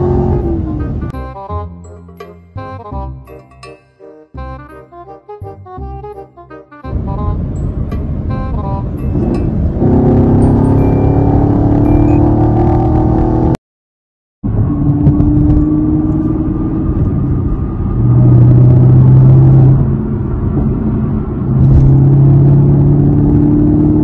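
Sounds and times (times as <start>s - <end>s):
wind rumble on microphone: 6.9s - 11.5s, 14.4s - 24.0s.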